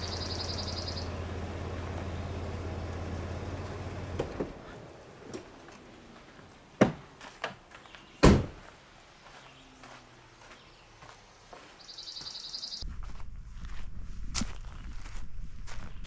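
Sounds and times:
car engine idling: 0.0 - 6.1
car door shutting: 8.2 - 8.6.

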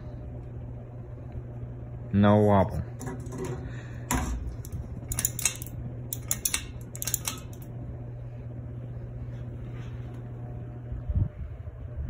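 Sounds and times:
ceiling fan motor hum: 0.0 - 12.0.

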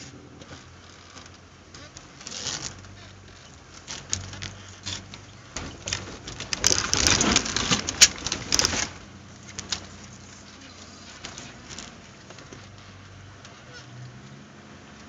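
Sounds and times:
tyres crunching over gravel: 0.0 - 14.3
faint low engine hum: 0.0 - 15.0
cabin knocks and rattles: 5.1 - 9.0.

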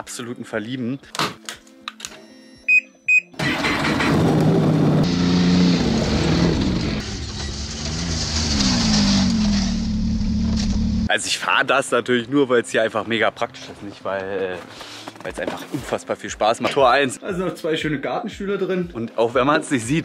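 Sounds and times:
short beeps: 2.2 - 3.4
snowmobile engine revving: 3.4 - 11.1.

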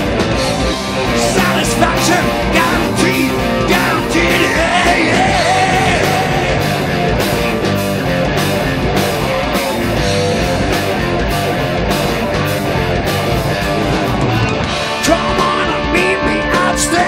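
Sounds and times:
bass guitar: 0.0 - 17.0
electric guitars: 0.0 - 17.0
keyboards: 0.0 - 17.0
steady drum beat: 0.0 - 17.0.

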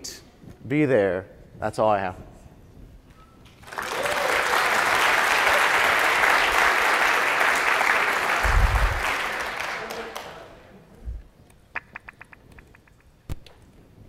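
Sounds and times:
audience applauding: 3.6 - 10.6
short low thump: 8.4 - 9.0.

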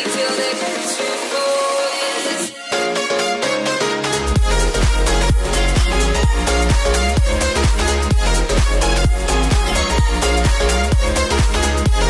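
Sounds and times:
sustained synth chords: 4.0 - 12.0
kick drum beat: 4.3 - 12.0.

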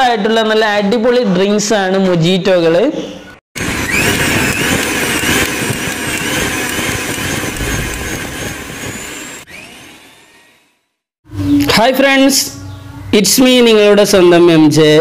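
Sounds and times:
loud rushing noise: 3.6 - 9.5.

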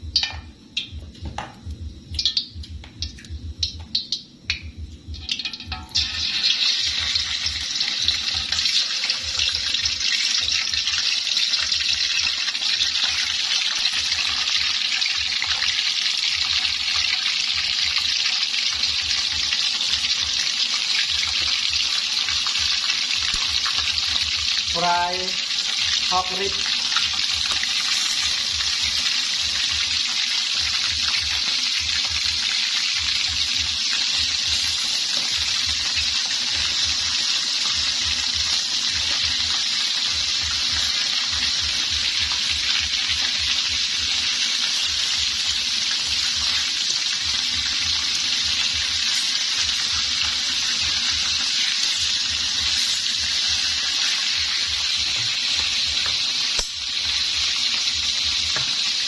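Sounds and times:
meat sizzling in a wok: 0.0 - 4.1, 4.8 - 59.0.

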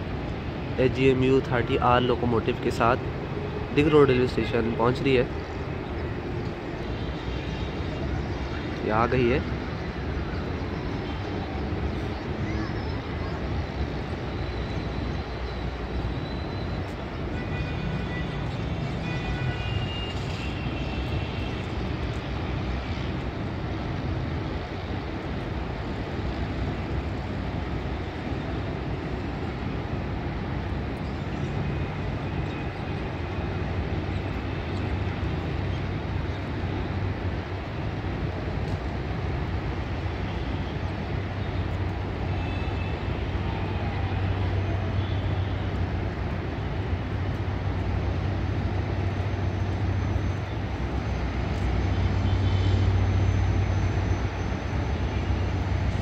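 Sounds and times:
locomotive engine droning: 0.0 - 56.0.

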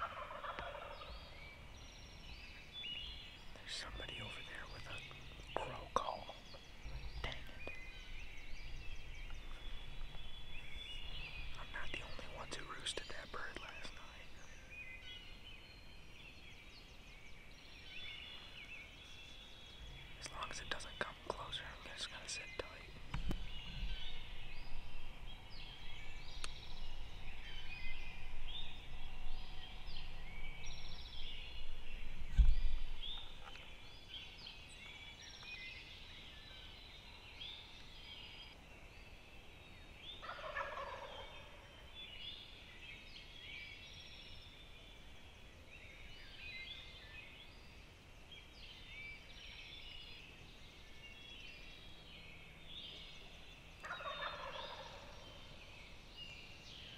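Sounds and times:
turkeys gobbling: 0.0 - 1.1, 40.2 - 41.6, 53.8 - 55.1
songbird chirps: 0.0 - 56.9.

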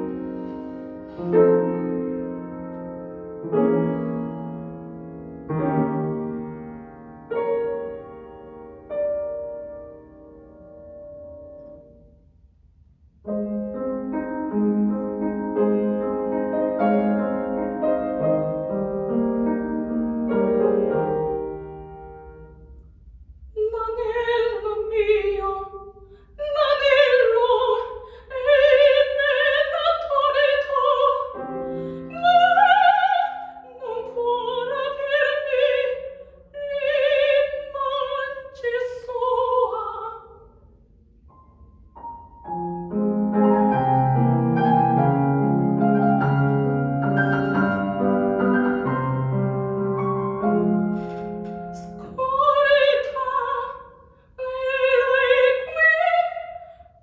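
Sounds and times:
grand piano chords: 0.0 - 57.0
soprano singing opera: 23.6 - 40.3, 51.8 - 56.7.

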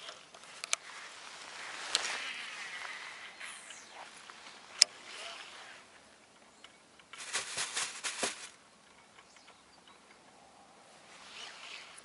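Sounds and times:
rustling: 0.0 - 6.1, 7.0 - 8.6.

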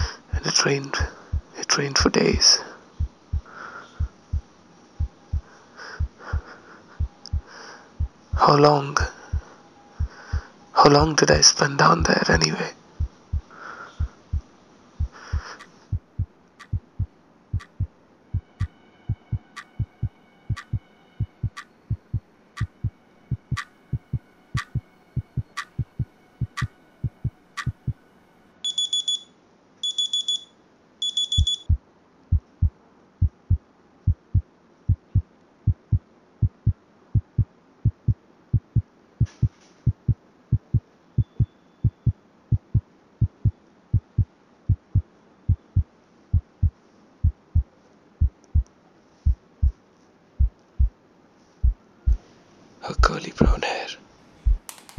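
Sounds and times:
low heartbeat-like thuds: 1.1 - 2.1, 3.0 - 6.5, 7.3 - 8.6, 13.0 - 28.0, 31.6 - 49.8, 50.4 - 51.0, 51.6 - 52.2, 54.4 - 54.7
clock ticking: 15.1 - 28.0, 31.2 - 31.8, 32.4 - 41.4, 47.3 - 48.7
high electronic alarm beeps: 28.6 - 31.8.

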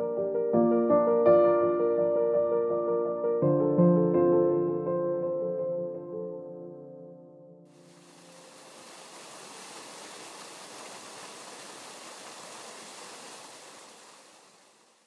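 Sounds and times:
piano music: 0.0 - 8.5
waterfall pouring into pool: 7.7 - 15.0.

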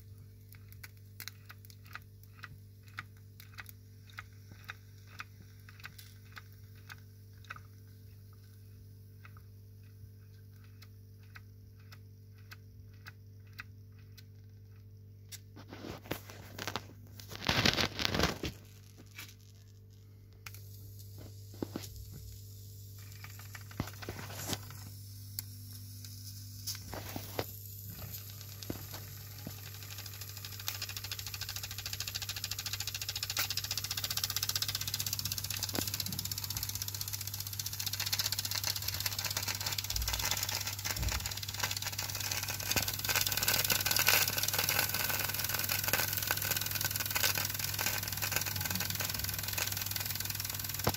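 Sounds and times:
low steady hum: 0.0 - 50.9
scattered clicks: 0.5 - 8.5, 9.2 - 18.5, 28.2 - 50.9
steam boiler hiss: 21.2 - 50.9.

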